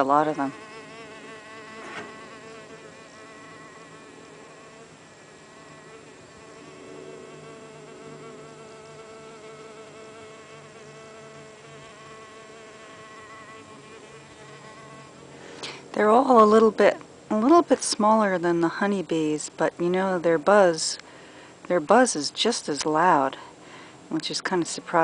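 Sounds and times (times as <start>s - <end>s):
bees buzzing: 0.0s - 16.9s.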